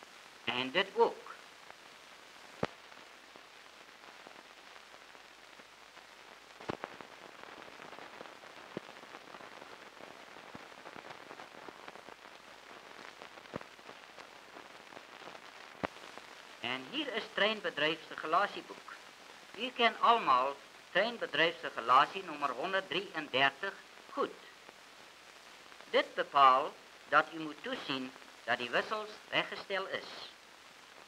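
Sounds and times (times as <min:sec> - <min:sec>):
film soundtrack hiss and crackle: 0:00.0 - 0:31.0
sharp pops: 0:06.6 - 0:09.0, 0:14.9 - 0:16.5.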